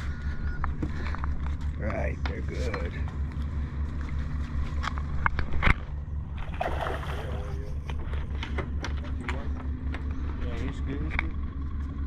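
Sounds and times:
steady low rumble: 0.0 - 12.0
fish splashing at the surface: 6.4 - 7.8.

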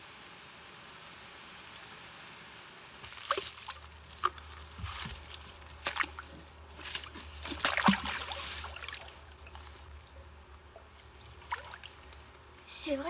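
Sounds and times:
low steady hum: 0.0 - 13.0
rustling through leafy undergrowth: 3.0 - 12.4.

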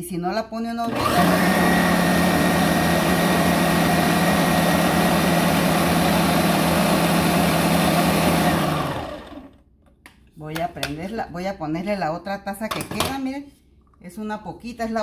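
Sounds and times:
blender running at high speed: 0.9 - 9.6.

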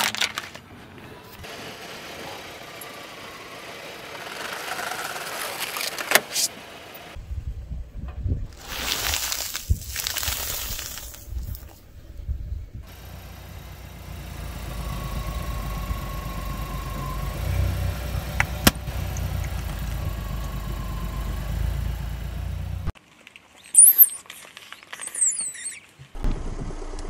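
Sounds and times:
tyre crushing plastic bag: 0.0 - 0.7, 8.6 - 11.6
car engine running low: 1.4 - 7.2, 11.8 - 23.0.

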